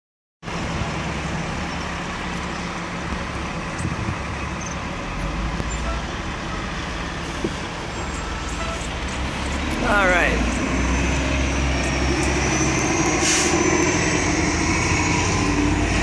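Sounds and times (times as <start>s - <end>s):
low diesel engine hum: 0.4s - 16.0s.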